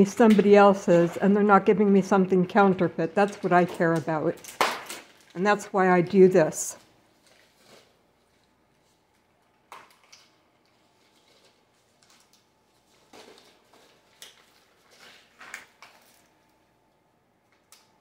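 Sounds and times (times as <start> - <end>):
paper rustling: 10.7 - 16.4.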